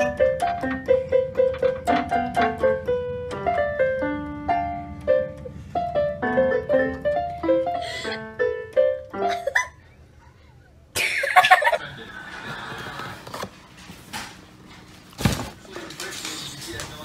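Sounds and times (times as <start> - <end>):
electronic keyboard melody: 0.0 - 9.6.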